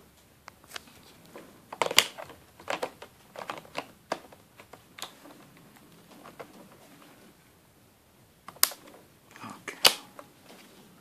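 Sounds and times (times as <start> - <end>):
fingers clicking on plastic: 1.7 - 6.5.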